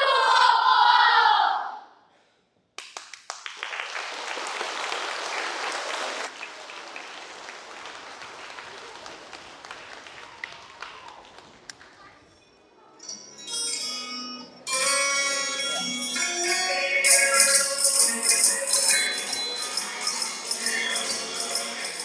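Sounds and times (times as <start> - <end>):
audience applause: 2.8 - 12.0
children singing: 16.4 - 22.0.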